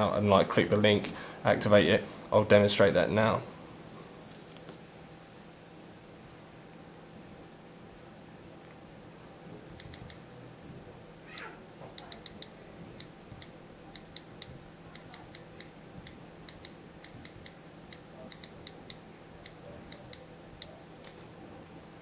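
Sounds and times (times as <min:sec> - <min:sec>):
touchscreen keyboard clicks: 0:09.8 - 0:10.2.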